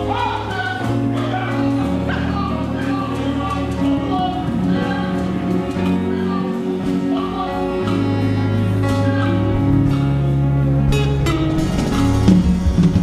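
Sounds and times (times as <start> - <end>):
choir singing a hymn: 0.0 - 10.9
held bass notes: 0.0 - 13.0
instrumental accompaniment: 0.0 - 13.0.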